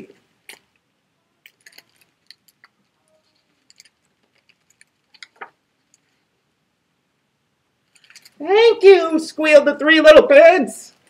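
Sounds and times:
book page turning: 1.5 - 6.1.

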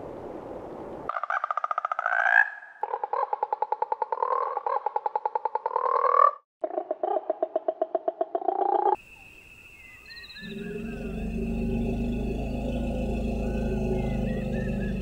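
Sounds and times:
frog calling in pulsed trills: 9.8 - 15.0.

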